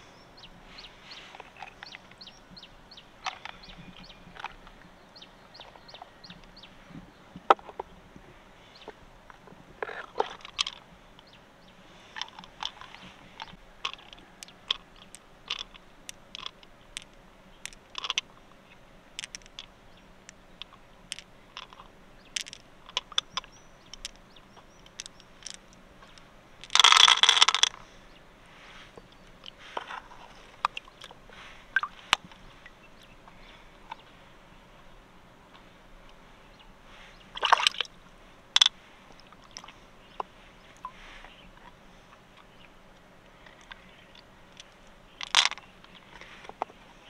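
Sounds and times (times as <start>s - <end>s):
pearls clicking: 10.0s - 11.3s, 12.1s - 18.5s, 19.1s - 27.8s, 38.6s - 41.1s, 44.5s - 46.6s.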